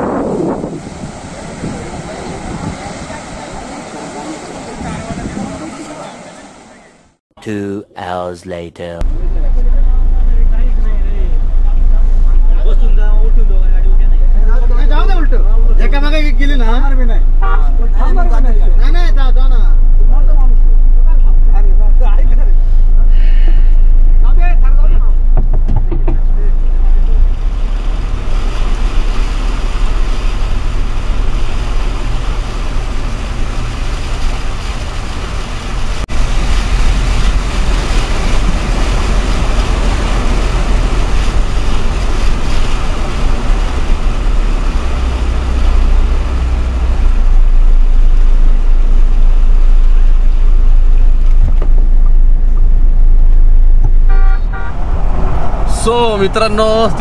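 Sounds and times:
water rushing: 0.0s - 7.2s, 9.0s - 57.0s
road noise: 0.0s - 57.0s
car engine running: 9.0s - 57.0s.

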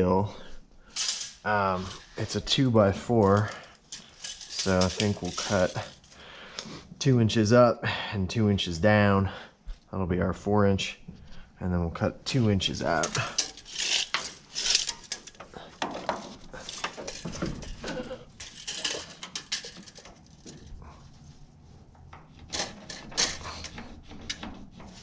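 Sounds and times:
metal tools clinking and scraping: 0.4s - 6.4s, 12.3s - 21.1s, 22.2s - 25.0s.

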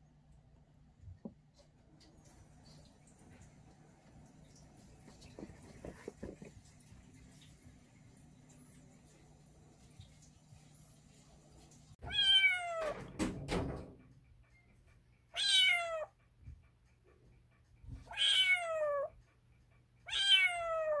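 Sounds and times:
kitten meowing: 12.0s - 13.0s, 15.4s - 16.1s, 18.1s - 19.1s, 20.1s - 21.0s
knocks: 13.0s - 14.1s.

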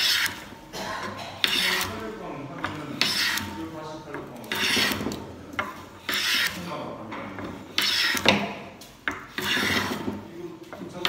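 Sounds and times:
hand plane shaving wood: 0.0s - 0.4s, 1.4s - 2.0s, 2.9s - 3.5s, 4.4s - 5.1s, 6.0s - 6.7s, 7.7s - 8.3s, 9.3s - 10.2s.

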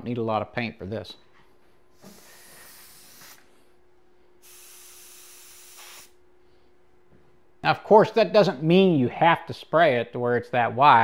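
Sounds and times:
airbrush hissing: 2.0s - 3.6s, 4.4s - 6.2s.

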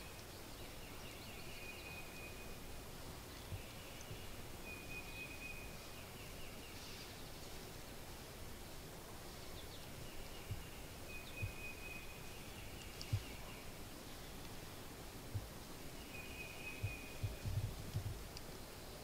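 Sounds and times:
soft low thumps: 15.3s - 15.6s, 16.8s - 18.3s.

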